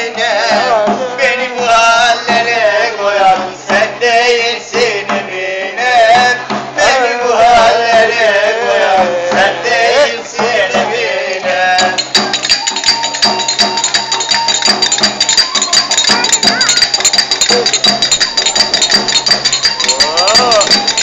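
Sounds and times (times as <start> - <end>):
frame drum beats: 0.0 - 21.0
rapid metallic jingling: 11.8 - 21.0.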